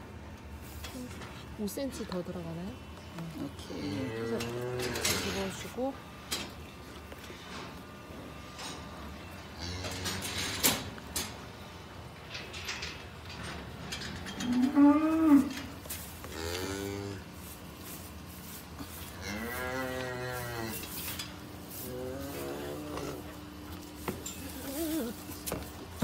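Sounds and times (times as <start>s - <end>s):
calf bawling: 21.9s - 23.6s, 24.3s - 25.4s.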